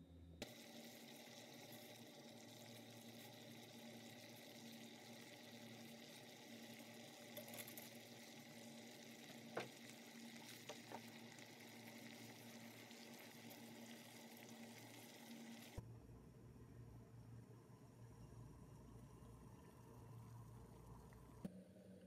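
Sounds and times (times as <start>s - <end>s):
boiling water bubbling: 0.4s - 15.8s.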